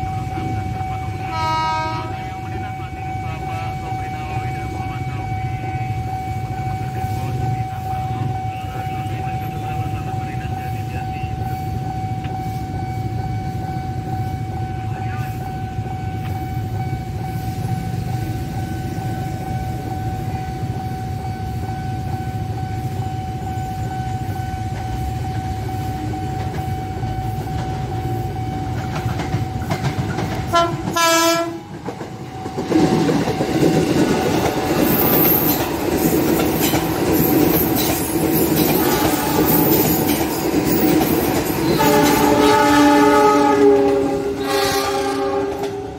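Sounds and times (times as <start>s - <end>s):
steady high tone: 0.0s - 30.8s, 31.5s - 45.9s
electric train rumble: 0.0s - 45.9s
train wheels clattering on rails: 22.0s - 45.9s.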